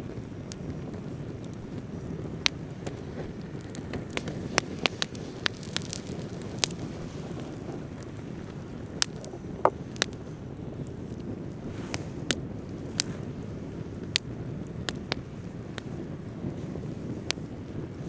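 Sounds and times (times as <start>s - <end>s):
campfire crackling: 0.0s - 18.0s.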